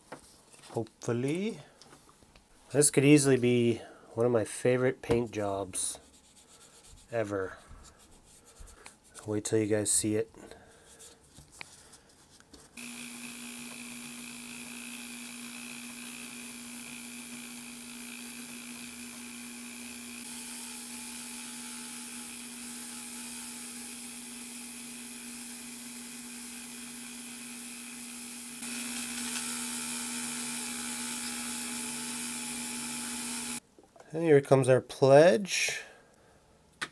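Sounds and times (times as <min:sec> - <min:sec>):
rotary tool motor whine: 0:12.8 - 0:33.6.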